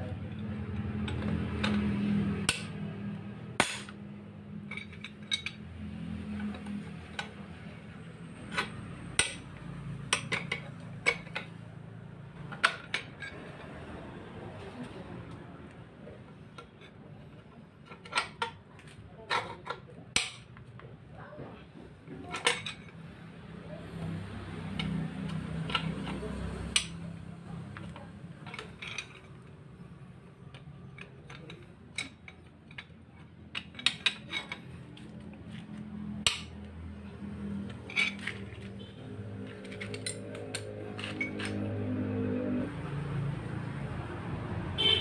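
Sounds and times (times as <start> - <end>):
metal rod clinking against gears: 37.6 - 41.8.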